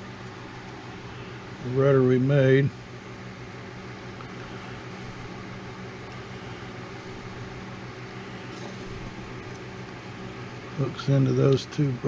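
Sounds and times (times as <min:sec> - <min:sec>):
machine humming: 0:00.0 - 0:12.0.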